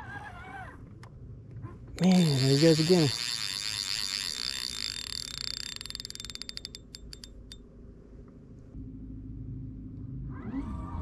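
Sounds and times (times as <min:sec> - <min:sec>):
fishing reel drag whining: 0:02.0 - 0:07.6.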